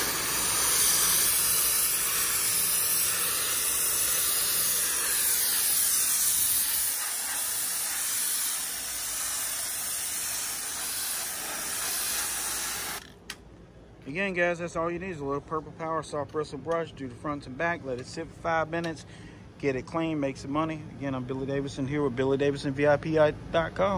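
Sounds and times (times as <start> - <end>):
pressure washer spraying: 0.0 - 13.1.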